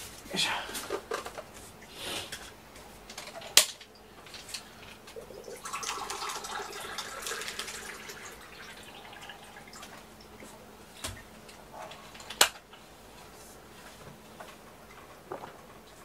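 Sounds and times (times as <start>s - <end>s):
water being poured: 5.1s - 10.5s.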